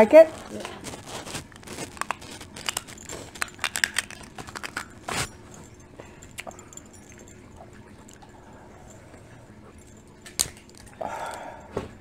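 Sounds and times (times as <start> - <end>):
crab legs cracking: 0.4 - 5.3, 10.2 - 11.4.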